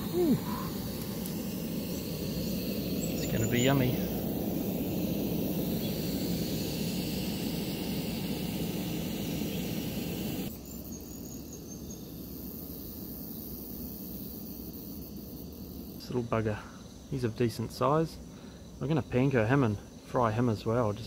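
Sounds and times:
low rumble with hiss: 0.0s - 10.7s, 15.3s - 21.0s.

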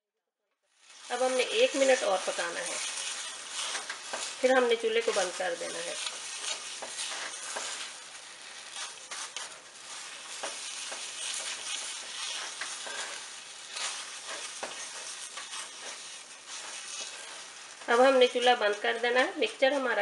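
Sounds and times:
spatula scraping a pan: 0.7s - 18.8s
milk mixture sizzling in a pan: 0.7s - 20.0s.

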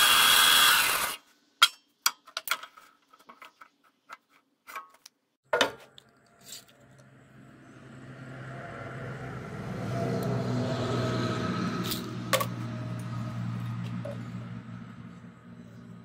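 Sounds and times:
band saw motor hum: 0.0s - 1.2s.

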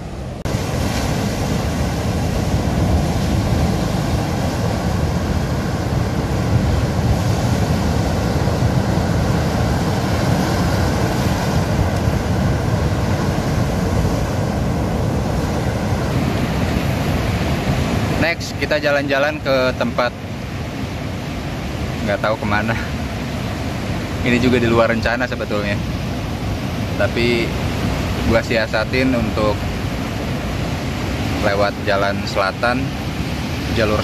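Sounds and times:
wind buffeting microphone: 0.0s - 18.3s
ocean surf breaking on beach: 0.0s - 34.0s.

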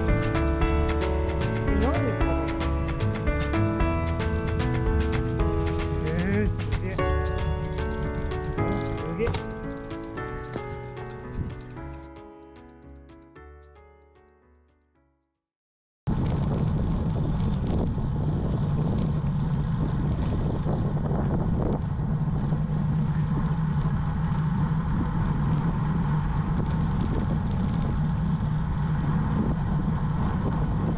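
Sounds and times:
wind rushing over microphone: 16.1s - 30.9s.

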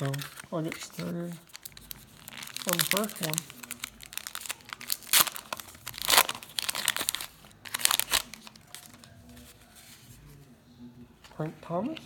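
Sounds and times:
wrapper crinkling and tearing: 0.0s - 9.5s.

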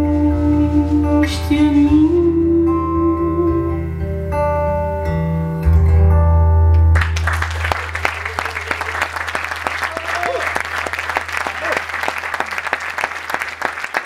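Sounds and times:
acoustic guitar playing: 0.0s - 8.3s
audience applauding: 7.0s - 14.0s.

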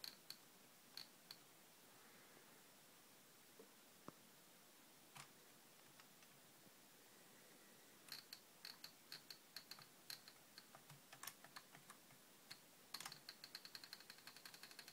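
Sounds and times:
keyboard typing clicks: 8.1s - 14.9s.

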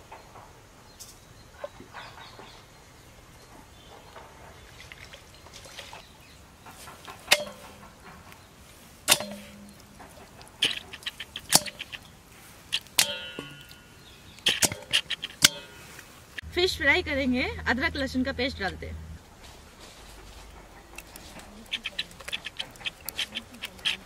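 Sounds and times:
steel bowl clinking: 7.3s - 7.8s, 9.1s - 12.0s, 12.8s - 15.9s.

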